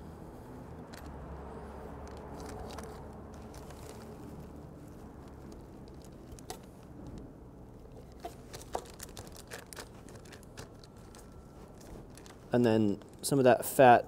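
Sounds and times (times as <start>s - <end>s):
paper crinkling: 1.9s - 7.2s, 7.8s - 13.4s.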